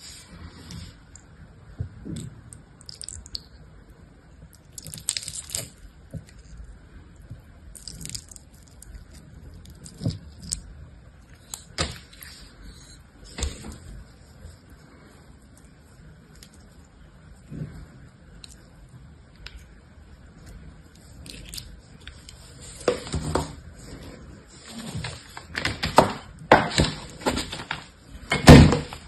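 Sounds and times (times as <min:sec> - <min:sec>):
wet gel squishing and crackling: 0:00.9 - 0:12.6, 0:13.8 - 0:22.6.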